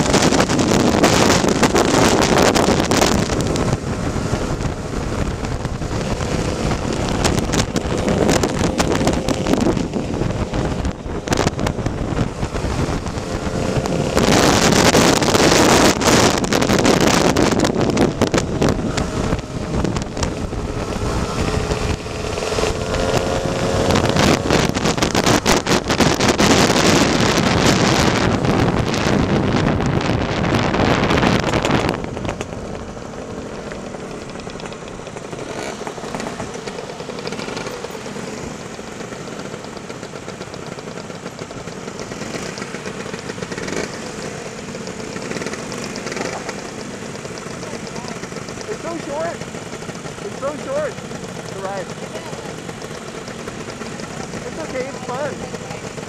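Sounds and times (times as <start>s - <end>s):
wind noise on microphone: 0.0s - 36.5s
scooter engine running: 0.0s - 56.0s.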